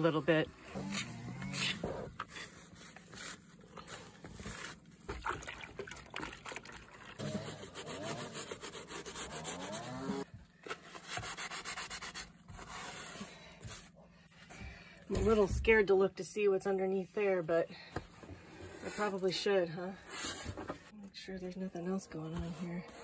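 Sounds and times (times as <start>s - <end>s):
paper towel scrubbing cushion: 7.2s - 13.9s.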